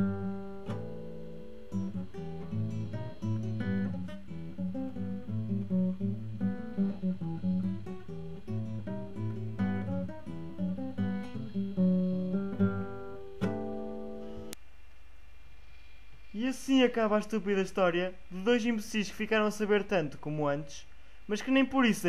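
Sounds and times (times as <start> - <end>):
acoustic guitar picking: 0.0 - 14.6.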